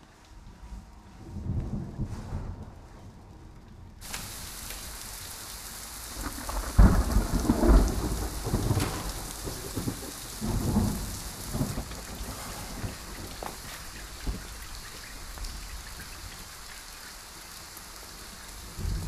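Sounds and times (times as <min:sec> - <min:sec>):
thunder rumbling: 0:04.0 - 0:14.8, 0:18.6 - 0:19.0
heavy rain pouring: 0:04.0 - 0:19.0.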